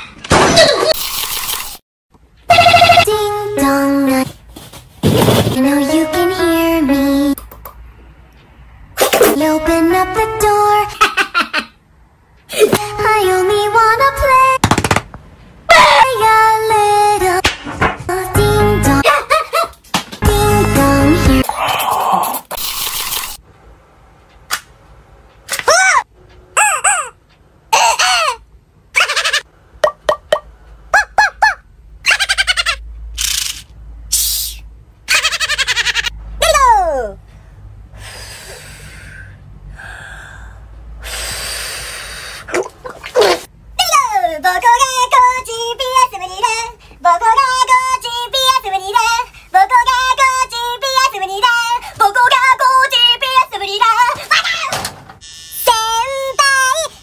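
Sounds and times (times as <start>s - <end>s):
high-pitched singing voice: 2.5s - 4.4s, 5.6s - 7.5s, 15.7s - 17.4s, 20.2s - 21.6s, 43.8s - 54.6s, 55.6s - 57.0s.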